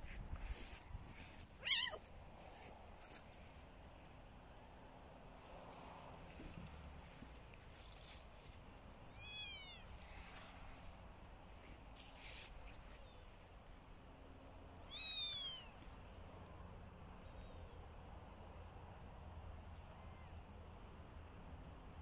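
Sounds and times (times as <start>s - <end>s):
kitten meowing: 1.6s - 2.1s, 9.1s - 10.0s, 14.8s - 15.7s.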